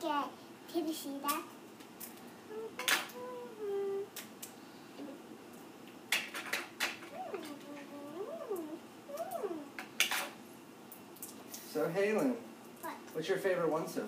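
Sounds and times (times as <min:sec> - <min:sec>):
child vocalizing: 0:02.5 - 0:04.2, 0:05.0 - 0:05.2, 0:07.1 - 0:09.8.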